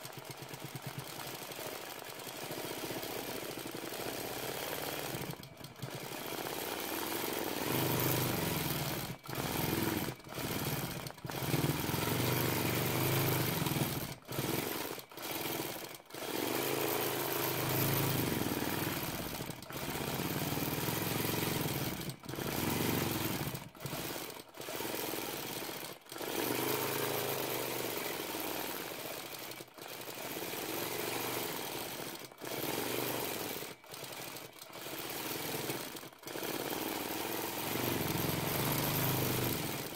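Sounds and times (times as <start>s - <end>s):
quilting machine stitching: 0.0s - 39.9s.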